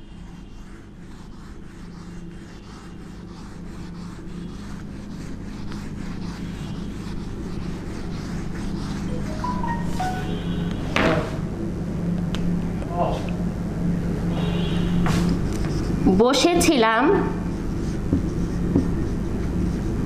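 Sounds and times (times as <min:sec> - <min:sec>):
eraser scrubbing whiteboard: 0:00.0 - 0:10.6, 0:15.0 - 0:20.0
steady low hum: 0:00.0 - 0:20.0.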